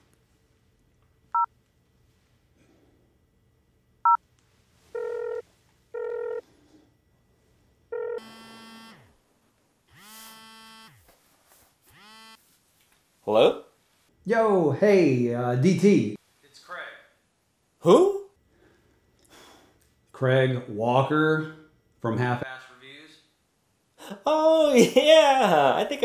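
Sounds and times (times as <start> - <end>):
mobile phone ringtone: 5.0 - 5.4, 6.0 - 6.4, 7.9 - 9.0
electronic ringing tones: 6.0 - 6.4, 7.9 - 9.0.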